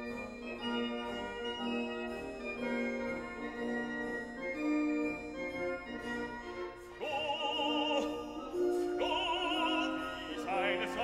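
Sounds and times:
classical music held chords: 0:00.0 - 0:11.0
operatic singing voice: 0:07.0 - 0:11.0.

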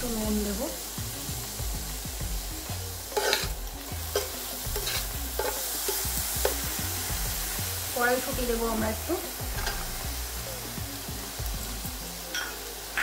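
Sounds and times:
vegetables sizzling in oil: 0:00.0 - 0:13.0
spoon scraping pan: 0:03.1 - 0:06.7.

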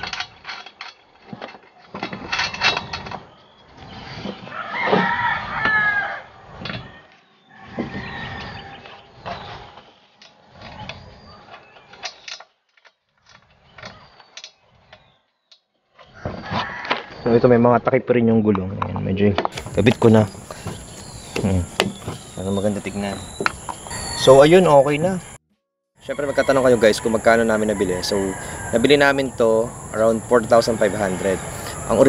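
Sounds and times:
rooster crowing: 0:04.5 - 0:06.4, 0:16.2 - 0:17.4, 0:19.6 - 0:25.4, 0:26.0 - 0:32.0.

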